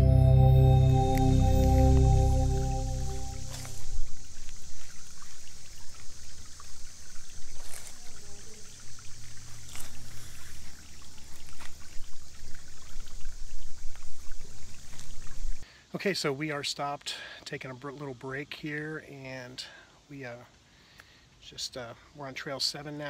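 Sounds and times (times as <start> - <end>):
creek water babbling over rocks: 3.3 - 15.6.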